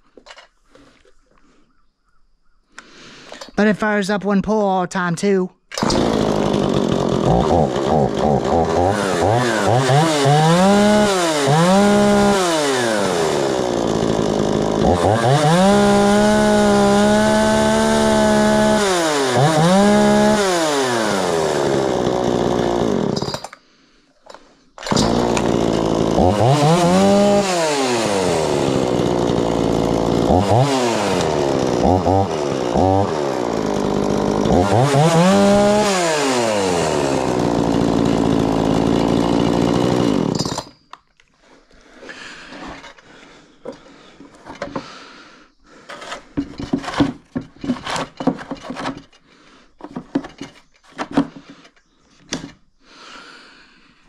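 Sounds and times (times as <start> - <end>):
chainsaw engine revving: 5.7 - 23.4, 24.8 - 40.7.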